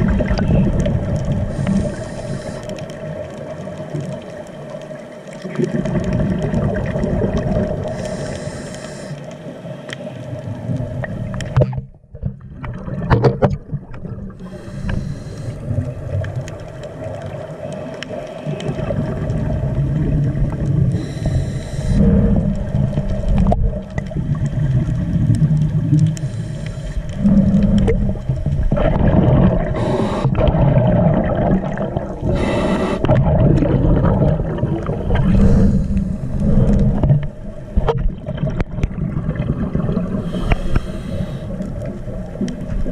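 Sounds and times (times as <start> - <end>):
underwater rumble: 0.0 - 42.9
water gurgling and sloshing: 0.0 - 42.9
hissing noise: 1.5 - 2.8, 14.4 - 15.6, 20.9 - 22.1, 29.7 - 30.5, 32.2 - 33.2, 40.2 - 41.6.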